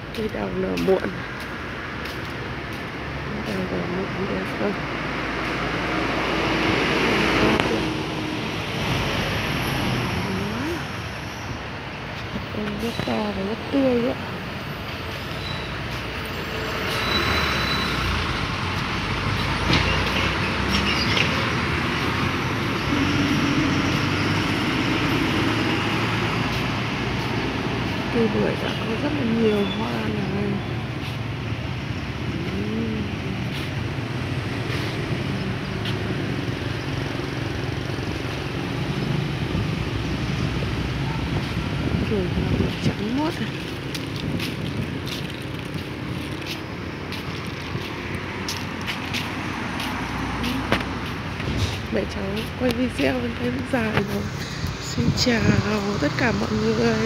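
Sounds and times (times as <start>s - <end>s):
distant road traffic: 0.0s - 57.0s
wind rumbling on microphone: 18.1s - 57.0s.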